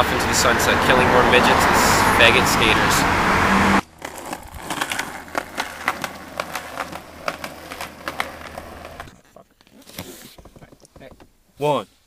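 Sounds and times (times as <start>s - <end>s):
running footsteps on concrete: 4.0s - 9.2s.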